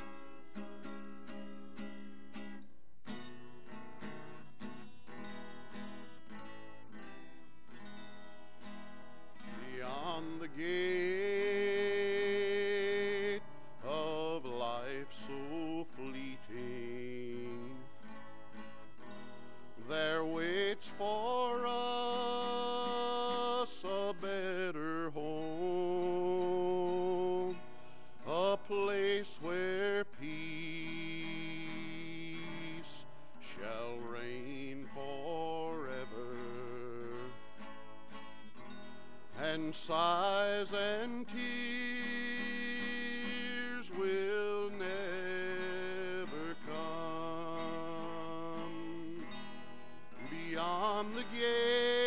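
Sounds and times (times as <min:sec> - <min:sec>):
acoustic guitar strumming: 0:00.0 - 0:52.0
man singing long notes: 0:09.4 - 0:18.0, 0:19.8 - 0:27.6, 0:28.2 - 0:37.4, 0:39.3 - 0:52.0.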